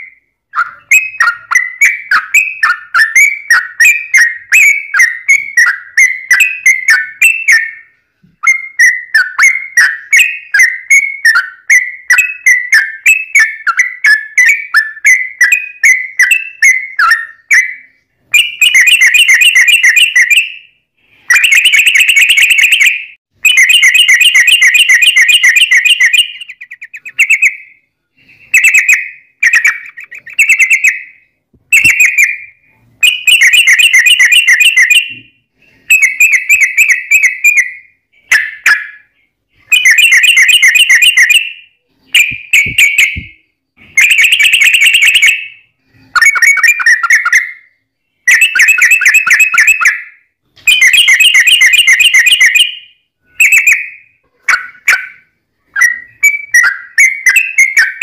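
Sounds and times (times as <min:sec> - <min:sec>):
bird chattering song: 0:00.0 - 0:20.6, 0:21.3 - 0:35.3, 0:35.9 - 0:45.5.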